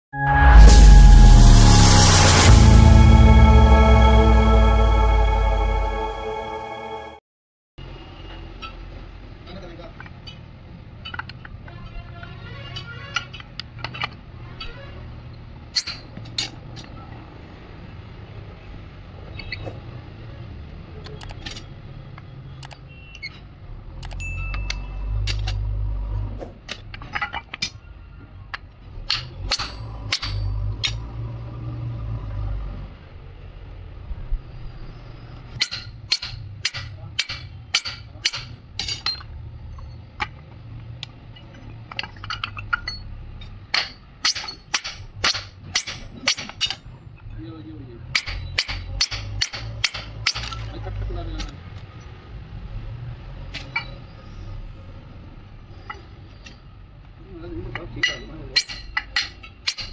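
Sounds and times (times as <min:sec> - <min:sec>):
background music: 0:00.2 - 0:07.2.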